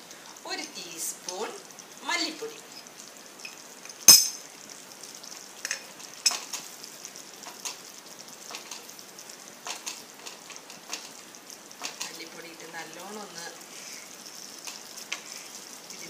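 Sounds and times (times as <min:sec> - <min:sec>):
faint sizzle: 0:00.0 - 0:16.0
steel spoon clinking on pan: 0:03.4 - 0:04.4.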